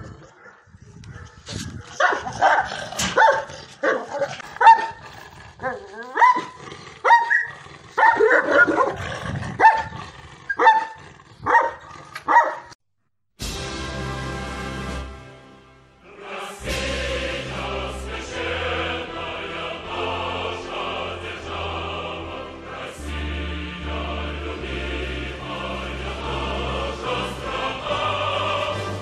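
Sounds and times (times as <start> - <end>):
dog barking: 0.3 - 5.0, 6.2 - 9.0, 9.6 - 9.9, 10.5 - 12.8
choral music: 13.4 - 29.0.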